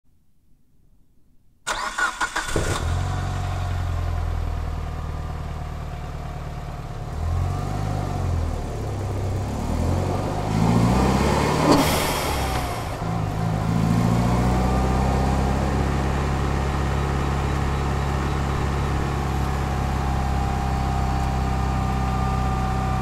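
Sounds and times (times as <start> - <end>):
car engine idling: 1.7 - 9.6, 11.8 - 23.0
car engine starting: 1.7 - 23.0
car engine revving: 7.1 - 17.9.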